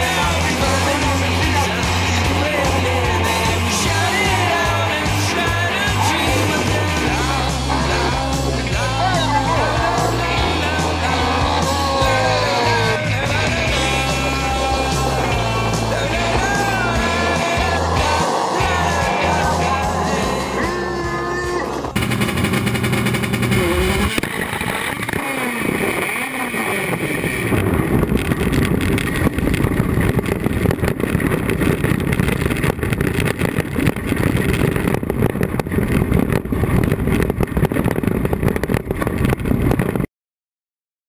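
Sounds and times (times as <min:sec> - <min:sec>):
background music: 0:00.0 - 0:24.2
race car engine revving: 0:00.0 - 0:37.9.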